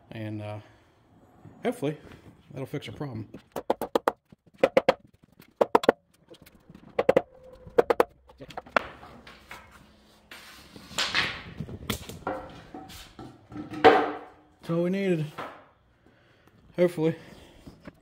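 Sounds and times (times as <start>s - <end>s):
hammer tapping on wood: 3.6s - 5.0s.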